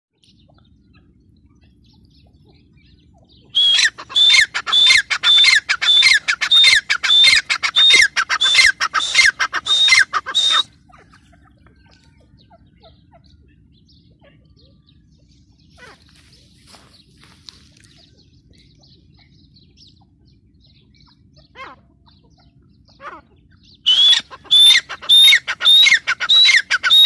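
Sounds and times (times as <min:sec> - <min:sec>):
bird harsh descending calls: 0:03.5 - 0:11.1, 0:22.9 - 0:27.0.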